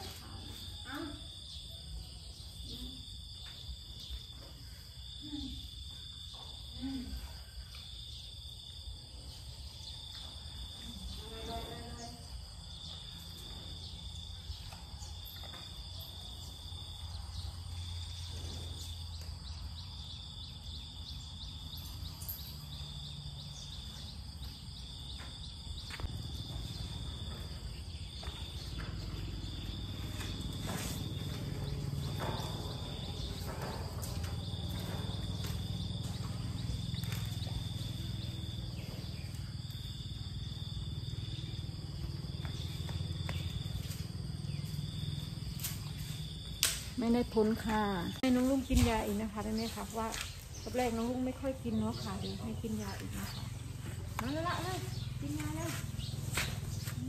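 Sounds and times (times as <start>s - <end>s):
high insect drone: 0.0s - 57.0s.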